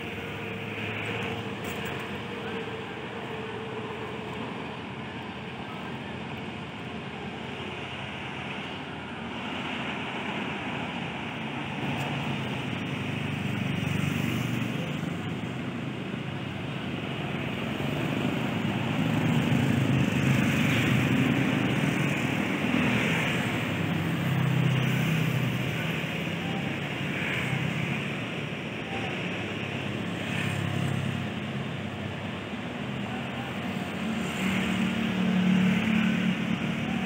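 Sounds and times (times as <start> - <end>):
road traffic rumble: 0.0 - 37.0.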